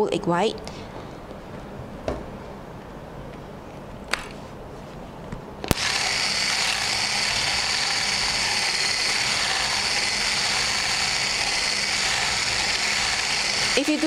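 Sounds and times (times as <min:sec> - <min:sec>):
electric whisk running: 0:05.7 - 0:14.0.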